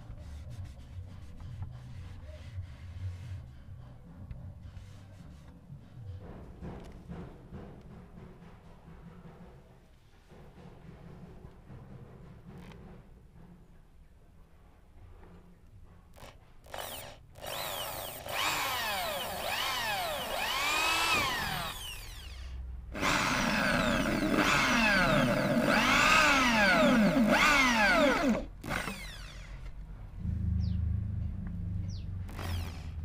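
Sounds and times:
hand drill boring through metal: 16.2 - 29.7, 32.3 - 33.0.

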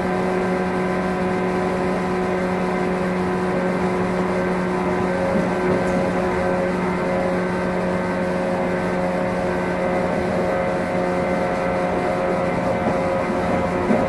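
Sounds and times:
motor and gear hum: 0.0 - 14.0
train running rumble: 0.0 - 14.0.

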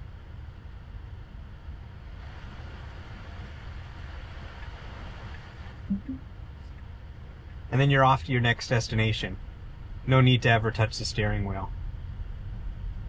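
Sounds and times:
road and tyre rumble in car: 0.0 - 13.0
brief low sound: 5.9 - 6.2.

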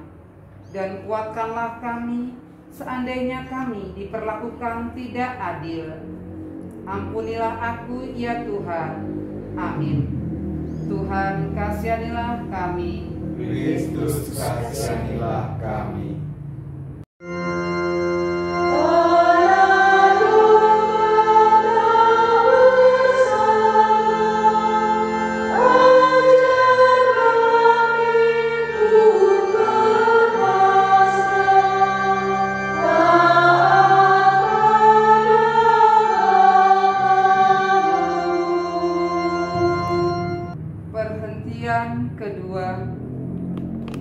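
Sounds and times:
choir singing a hymn: 11.1 - 16.0, 18.2 - 40.5.

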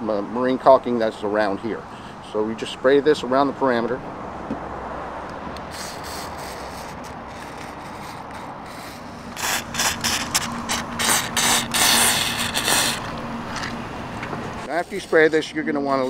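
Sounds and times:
aerosol spray hisses: 5.6 - 13.1.

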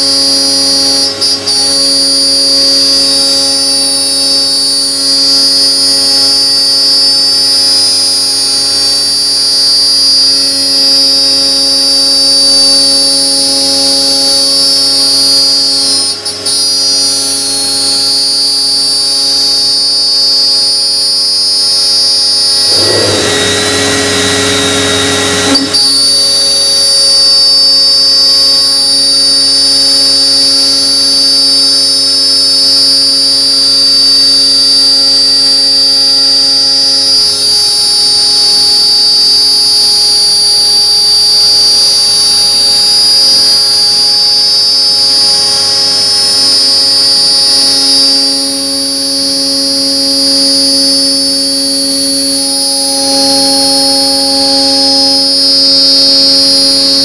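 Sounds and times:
router spindle whine: 0.0 - 57.0.

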